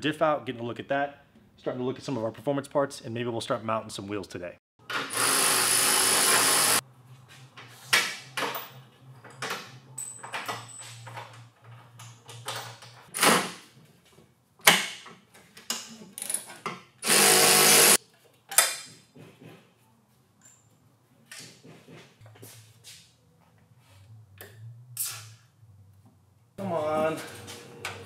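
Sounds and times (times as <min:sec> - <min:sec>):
handheld power tool: 0:04.9 - 0:06.8, 0:17.0 - 0:18.0.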